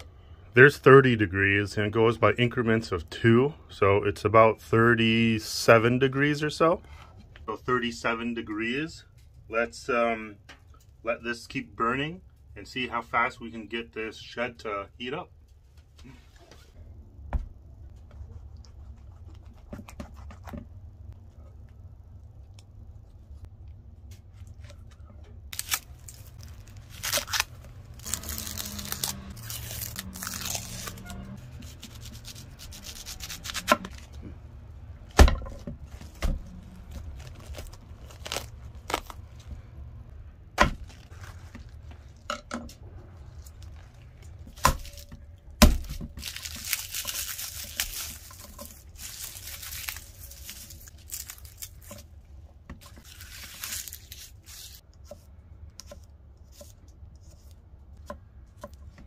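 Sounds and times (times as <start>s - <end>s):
onion skin tearing: 25.5s - 34.1s, 36.5s - 39.3s, 45.7s - 52.0s, 52.9s - 54.8s.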